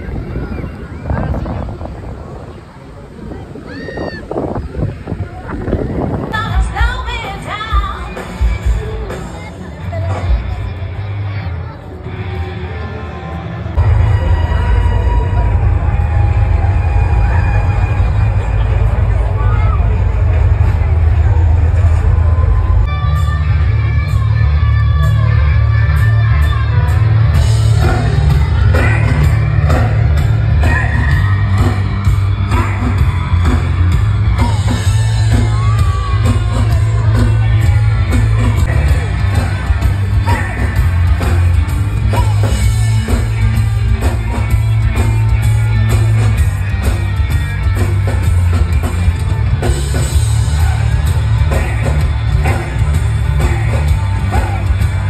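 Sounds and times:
live rock band playing: 5.6s - 12.8s, 13.7s - 55.0s.

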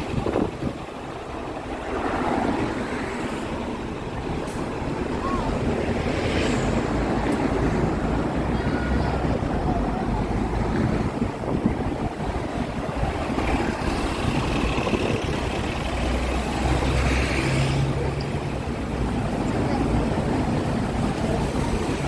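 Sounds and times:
city traffic rumble: 0.0s - 22.0s.

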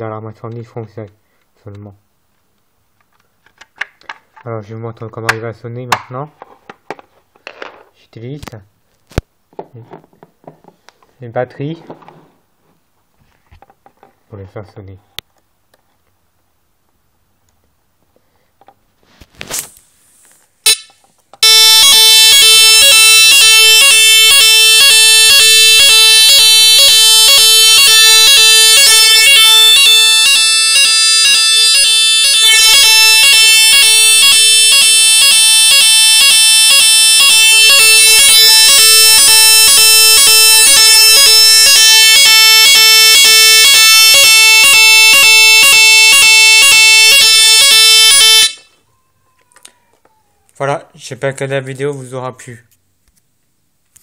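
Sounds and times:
fire alarm buzzing tone: 20.7s - 48.7s.

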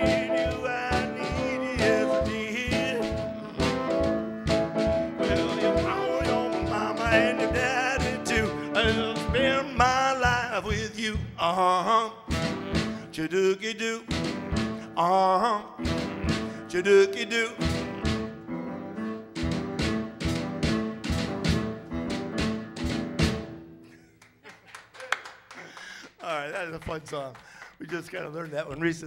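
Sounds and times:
saxophone lead: 0.0s - 10.6s, 12.2s - 13.5s, 14.1s - 21.5s
piano chords: 0.0s - 10.8s, 14.1s - 23.9s
steady drum beat: 0.0s - 11.7s, 12.3s - 13.2s, 14.1s - 15.2s, 15.8s - 17.0s, 17.6s - 18.4s, 19.3s - 23.6s.

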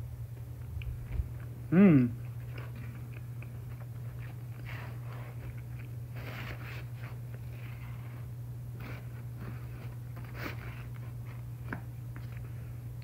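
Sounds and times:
person chewing: 2.2s - 6.1s.

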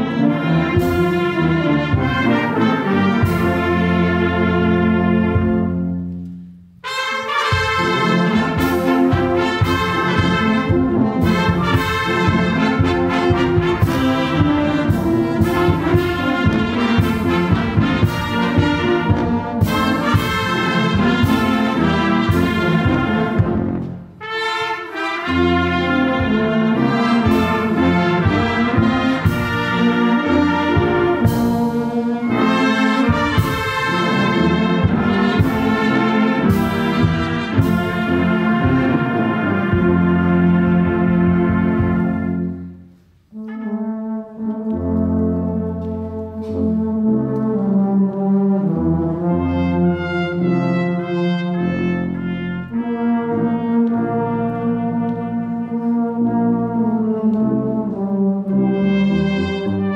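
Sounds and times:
brass band playing: 0.0s - 59.9s.

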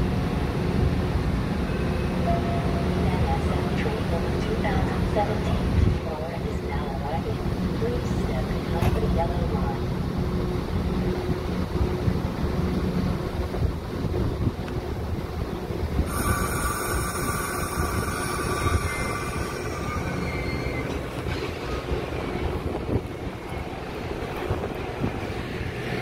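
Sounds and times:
train low rumble: 0.0s - 26.0s
high multi-tone squeal: 16.1s - 22.6s.

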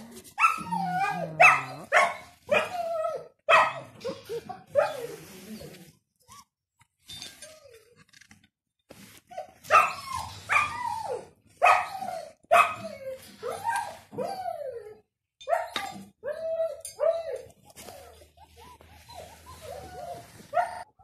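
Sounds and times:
puppies yapping: 0.3s - 5.2s.

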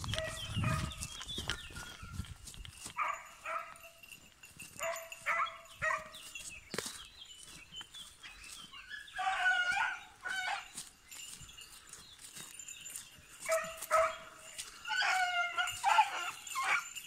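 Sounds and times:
dog yelping bays: 14.9s - 17.0s.

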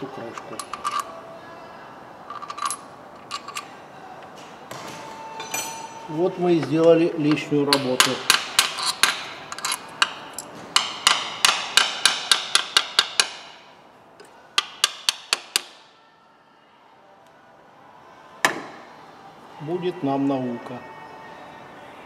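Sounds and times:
hand tool tapping metal: 6.6s - 13.6s, 14.2s - 15.8s.

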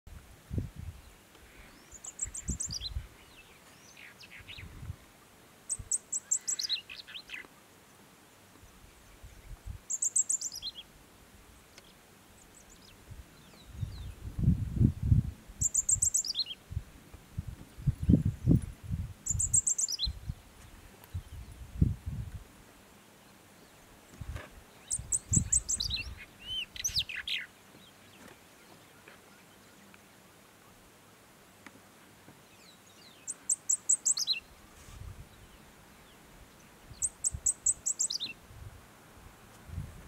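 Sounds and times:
bird singing: 1.0s - 4.7s, 5.7s - 7.5s, 9.0s - 10.9s, 11.8s - 14.2s, 15.6s - 16.6s, 19.2s - 20.4s, 24.7s - 30.0s, 32.4s - 34.6s, 35.3s - 38.4s.

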